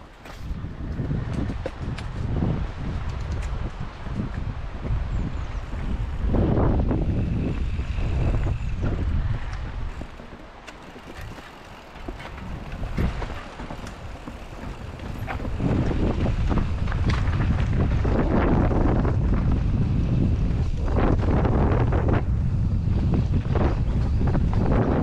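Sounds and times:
wind buffeting microphone: 0:00.0 - 0:25.0
bike knocks and clatter: 0:00.1 - 0:04.5, 0:08.6 - 0:19.9, 0:23.0 - 0:25.0.

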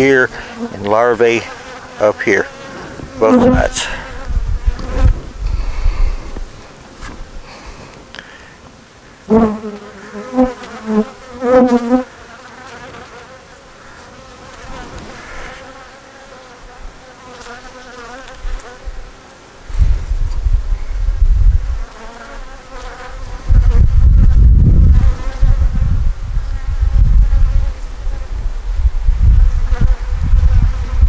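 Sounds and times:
steady hum of bee colony: 0:00.0 - 0:31.0
bees flying past buzzing: 0:00.1 - 0:07.8, 0:09.3 - 0:19.5, 0:21.8 - 0:23.9.

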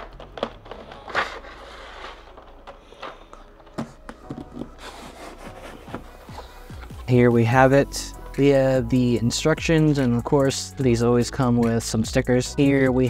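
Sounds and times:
cardboard boxes sliding: 0:00.5 - 0:07.2
soft rubbing: 0:04.4 - 0:07.1.

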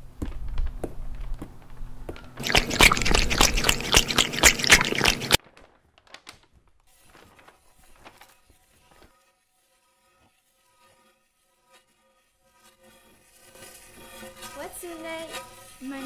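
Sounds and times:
water splashing: 0:02.4 - 0:05.4.

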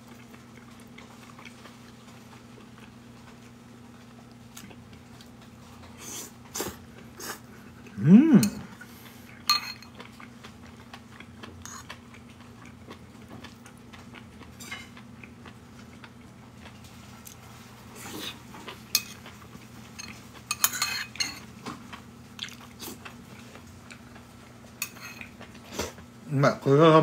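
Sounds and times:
chewing: 0:00.0 - 0:26.1
spoon clinking against plate: 0:09.5 - 0:09.9, 0:20.0 - 0:21.5.

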